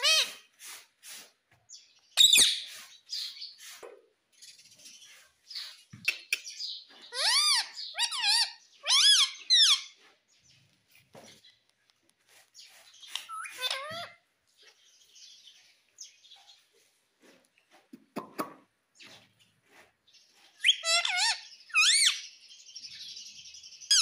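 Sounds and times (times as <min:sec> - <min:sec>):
parrot screech: 0:00.0 - 0:00.5
parrot whistled calls: 0:20.6 - 0:22.2.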